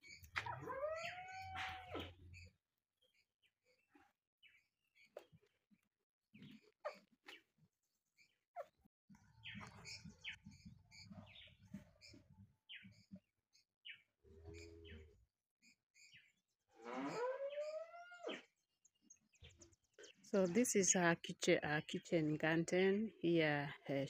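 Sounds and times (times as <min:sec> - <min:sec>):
small birds chirping: 0:00.0 - 0:05.6, 0:06.3 - 0:07.5, 0:08.2 - 0:16.5, 0:17.1 - 0:24.0
drawn-out rising animal call: 0:00.4 - 0:02.2, 0:16.8 - 0:18.4.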